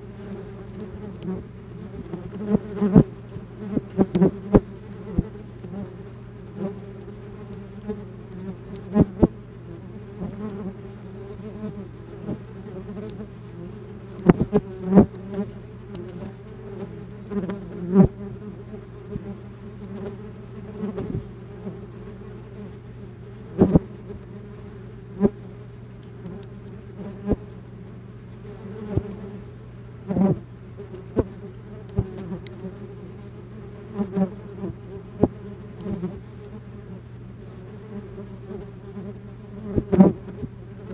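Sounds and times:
wasps buzzing: 0:00.0 - 0:40.9
wasps tapping on camera: 0:00.2 - 0:09.4, 0:10.2 - 0:18.2, 0:31.2 - 0:32.6.

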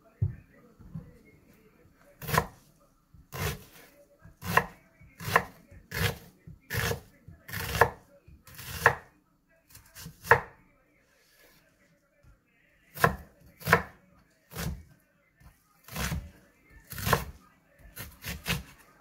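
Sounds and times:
knife slicing onion: 0:02.2 - 0:02.6, 0:03.3 - 0:09.1, 0:09.8 - 0:10.5, 0:12.9 - 0:14.8, 0:15.8 - 0:18.8.

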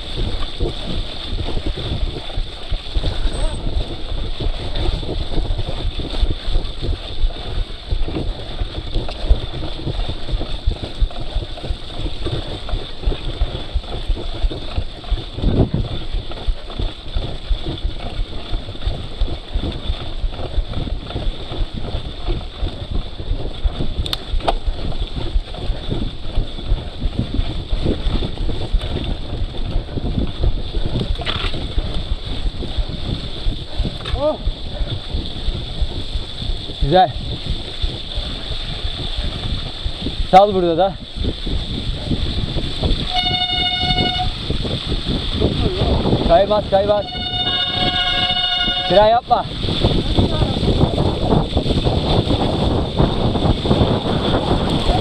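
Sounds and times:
wind rumble on microphone: 0:00.0 - 0:55.0.

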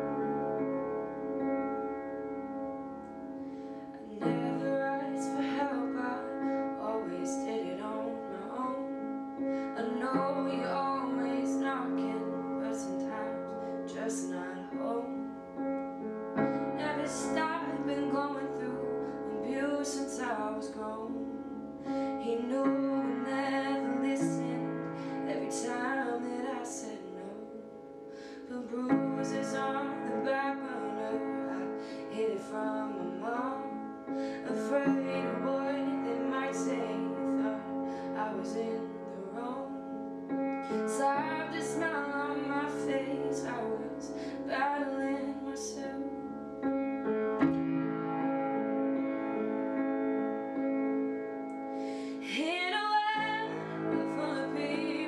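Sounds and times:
upright piano chords: 0:00.0 - 0:55.0
woman singing slow song: 0:03.9 - 0:15.4, 0:16.4 - 0:39.9, 0:40.5 - 0:46.4, 0:51.8 - 0:55.0.

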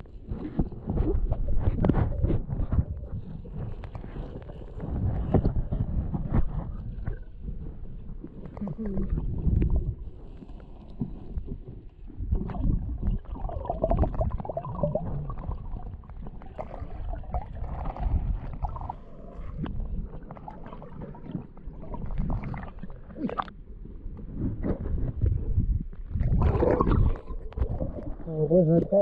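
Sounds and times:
low rumbling: 0:00.0 - 0:20.5
stream water sloshing and splashing: 0:00.0 - 0:23.6, 0:26.0 - 0:28.7.

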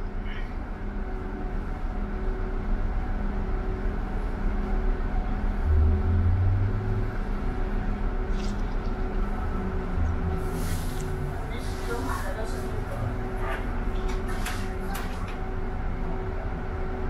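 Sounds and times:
pulsing hum: 0:00.0 - 0:11.6
bus engine rumble: 0:00.0 - 0:17.0.

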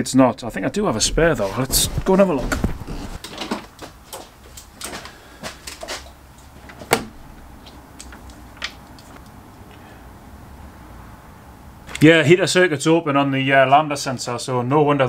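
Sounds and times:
small clicks and knocks: 0:03.2 - 0:09.4.

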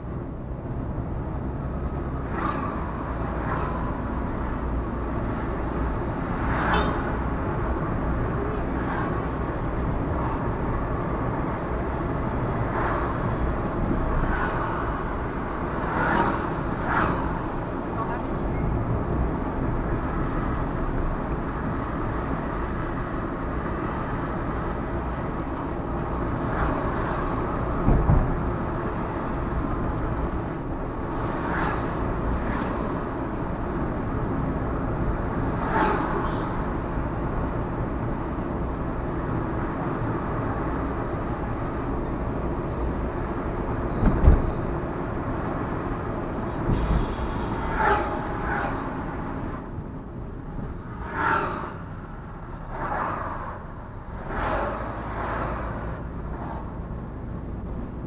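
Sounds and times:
car engine and tyre rumble: 0:00.0 - 0:58.0
brief high-pitched traffic sounds: 0:46.7 - 0:49.0.

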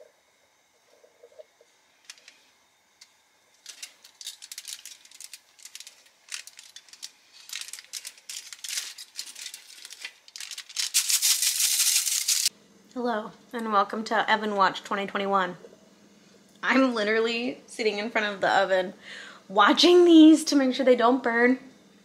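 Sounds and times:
aluminium foil crinkling: 0:02.0 - 0:02.4, 0:03.5 - 0:12.5.

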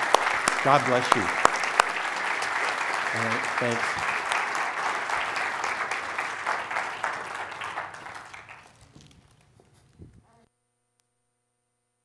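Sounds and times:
congregation applauding: 0:00.0 - 0:09.5.

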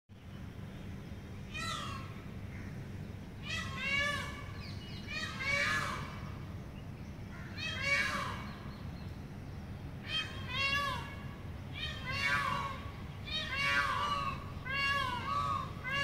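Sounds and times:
steady low hum: 0:00.1 - 0:16.0
peacock calling: 0:01.5 - 0:02.8, 0:03.4 - 0:06.5, 0:07.3 - 0:08.9, 0:10.0 - 0:16.0.

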